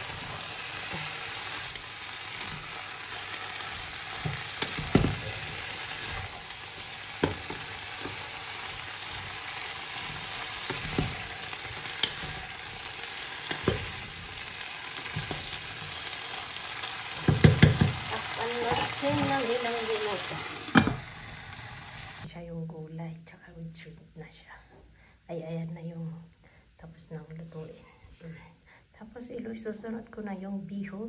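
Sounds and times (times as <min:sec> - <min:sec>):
vegetables sizzling in a pan: 0:00.0 - 0:22.3.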